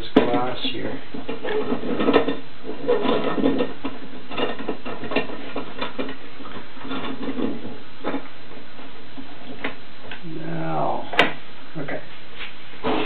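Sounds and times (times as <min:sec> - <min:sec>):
pipe clamps handled: 0:01.1 - 0:08.3.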